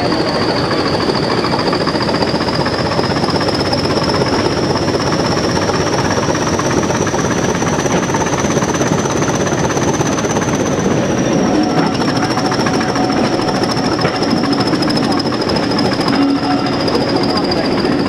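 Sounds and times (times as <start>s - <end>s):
diesel locomotive engine rumbling: 0.0s - 18.0s
turbocharger whistle: 10.4s - 18.0s.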